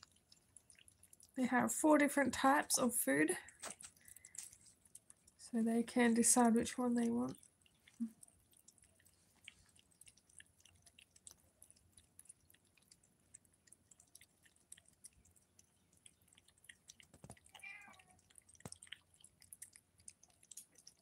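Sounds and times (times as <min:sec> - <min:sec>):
cats chewing wet food: 0:00.0 - 0:21.0
cat meowing: 0:17.5 - 0:18.2.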